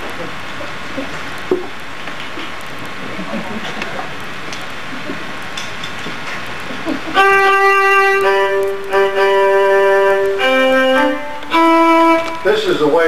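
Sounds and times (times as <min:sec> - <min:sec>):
instrument playing held notes: 0:07.1 - 0:13.0.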